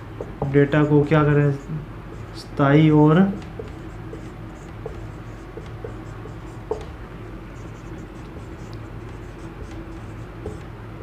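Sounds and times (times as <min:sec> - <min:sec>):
marker writing on whiteboard: 0:00.2 - 0:10.8
marker tapping on board: 0:03.2 - 0:10.7.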